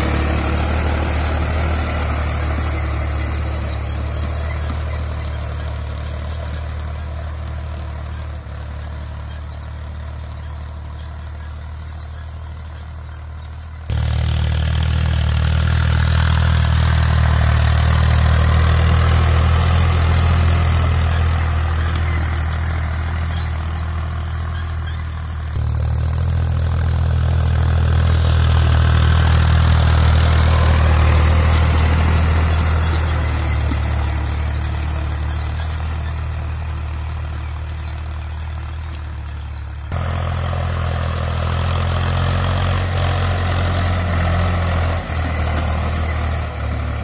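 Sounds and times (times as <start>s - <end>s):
tractor diesel engine under load: 0.0s - 47.0s.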